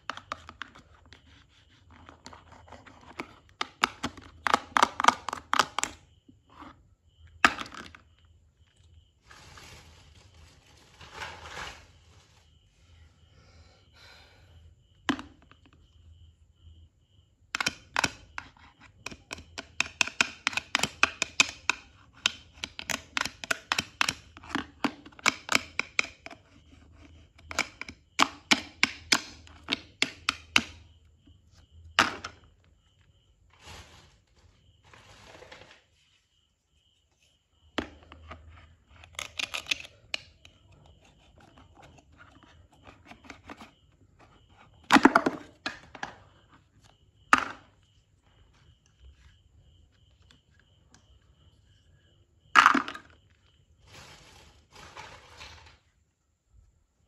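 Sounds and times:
soft rustle: 9.2s - 13.0s, 33.5s - 36.3s, 53.8s - 55.8s
plastic toy clatter on board: 38.9s - 40.3s.

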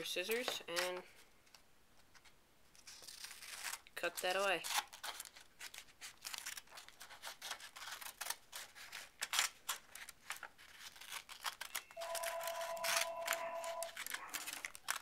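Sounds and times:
scissors snipping paper: 2.8s - 15.0s
steady tone: 12.0s - 13.9s.

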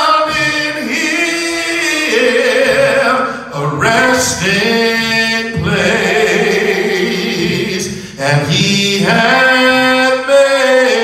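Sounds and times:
man singing gospel song: 0.0s - 11.0s
man breathing: 3.2s - 3.5s, 7.9s - 8.2s.

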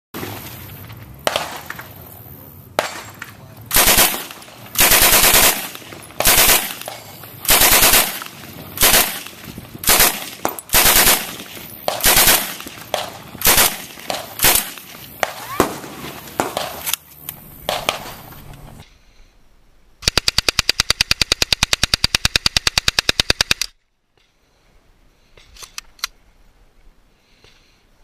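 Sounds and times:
submachine gun bursts: 3.7s - 15.7s, 20.0s - 23.7s.

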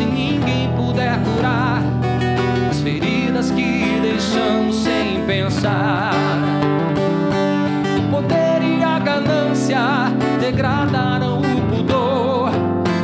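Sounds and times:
man singing: 0.0s - 13.0s.

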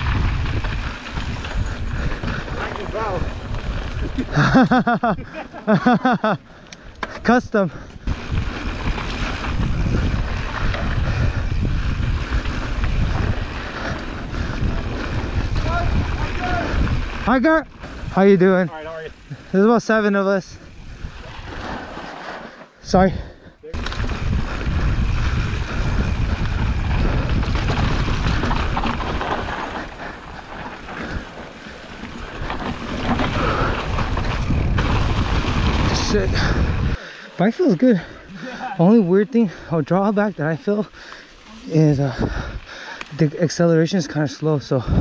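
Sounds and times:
wind on microphone: 0.0s - 4.3s, 8.0s - 18.2s, 20.6s - 22.0s, 23.8s - 37.0s
bike rattling clicks: 0.0s - 5.0s, 6.5s - 19.6s, 23.8s - 36.9s
bike rolling rumble: 0.0s - 45.0s.

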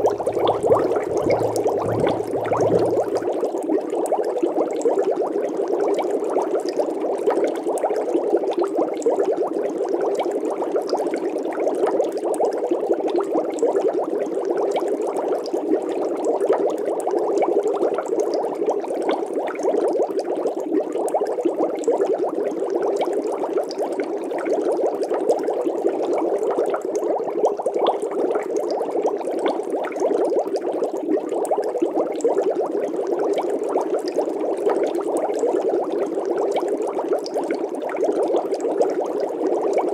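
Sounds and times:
water bubbling: 0.0s - 3.7s.

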